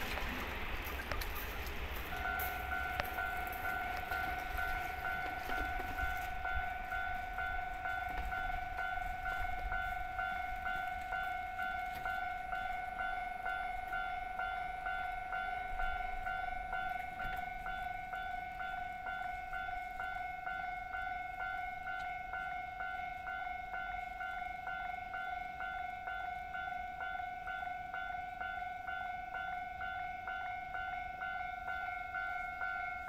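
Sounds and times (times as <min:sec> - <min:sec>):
level crossing warning bell: 0:00.0 - 0:33.0.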